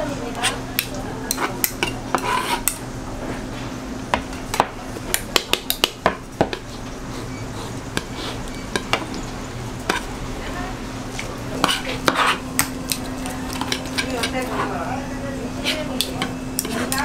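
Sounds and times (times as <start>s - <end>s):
spatula scraping cutting board: 1.3s - 2.7s, 11.6s - 12.4s.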